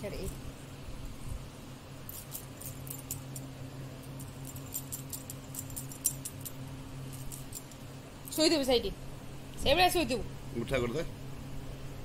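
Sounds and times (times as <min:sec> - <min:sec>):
steady low hum: 0:00.0 - 0:12.0
bird clicking and rustling: 0:04.2 - 0:07.8.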